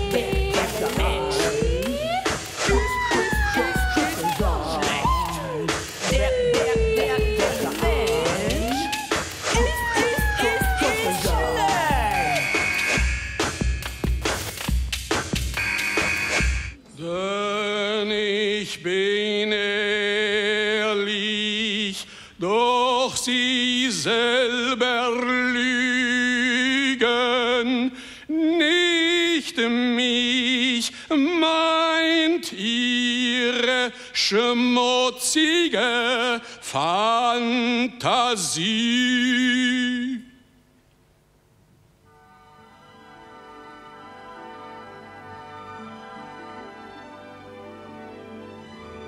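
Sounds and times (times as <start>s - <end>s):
person singing unaccompanied: 0.0s - 12.5s.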